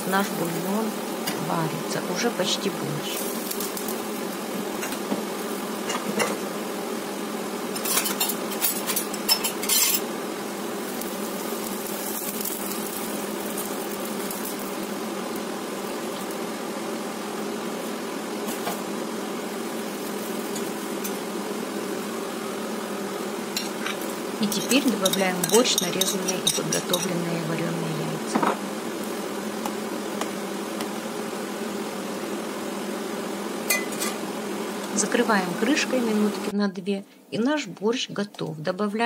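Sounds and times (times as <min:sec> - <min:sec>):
spatula scraping against pot: 0:23.6 - 0:27.2.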